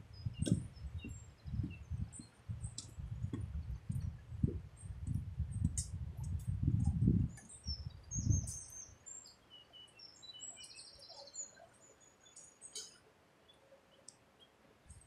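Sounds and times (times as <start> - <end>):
low bumps and rumble: 0.0 - 8.5
small birds chirping: 0.0 - 15.0.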